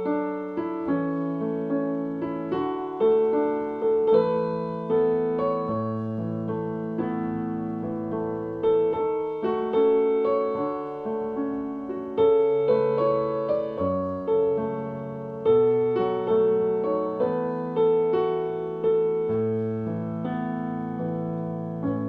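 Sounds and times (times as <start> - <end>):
slow instrumental piano: 0.0 - 22.0.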